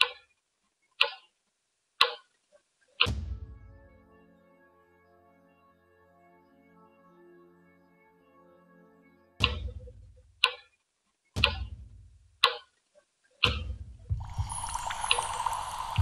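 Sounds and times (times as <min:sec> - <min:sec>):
water bubbling and fizzing in a glass: 0:14.1 - 0:16.0.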